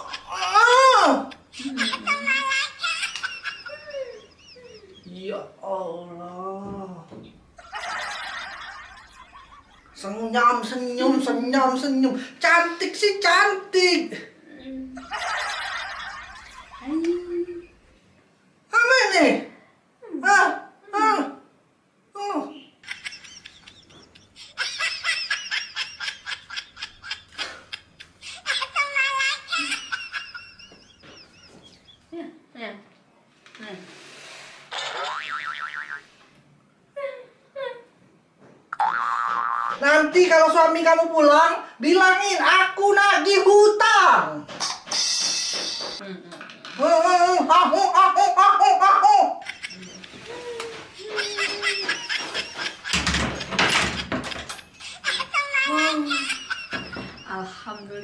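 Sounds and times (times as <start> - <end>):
high-pitched laughter: 0.0 - 5.0, 22.8 - 31.8, 47.7 - 58.0
soft vocal sounds: 14.2 - 15.0.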